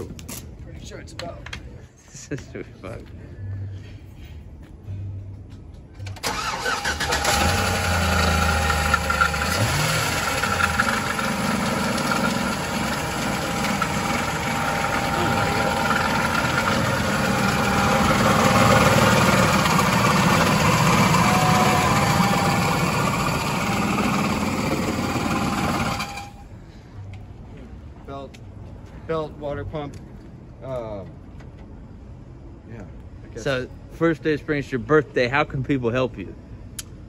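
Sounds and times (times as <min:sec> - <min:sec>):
engine idling: 0:06.0 - 0:26.4
truck engine cranking and starting: 0:06.0 - 0:26.5
steady whine: 0:06.7 - 0:26.8.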